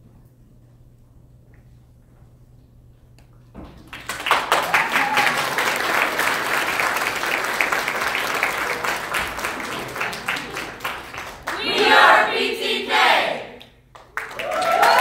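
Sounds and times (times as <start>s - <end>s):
audience applause: 3.9s - 12.2s, 13.9s - 15.0s.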